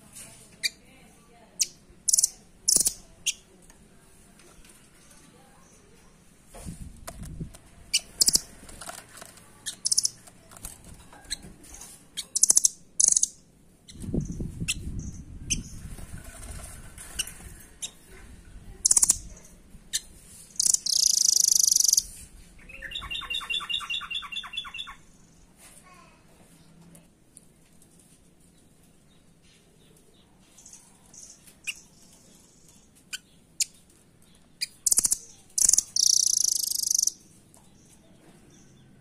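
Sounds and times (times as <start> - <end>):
bird trilling: 7.9 - 8.5, 9.7 - 10.2, 12.2 - 13.3, 18.8 - 19.3, 19.9 - 22.1, 22.7 - 25.0, 34.6 - 37.2
bird calling: 20.6 - 22.1, 34.6 - 37.2.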